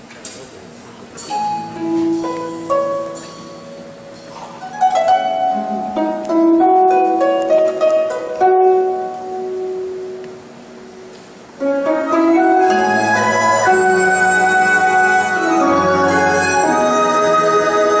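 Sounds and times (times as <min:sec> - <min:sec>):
plucked string melody: 0:01.3 - 0:18.0
orchestra held notes: 0:11.6 - 0:18.0.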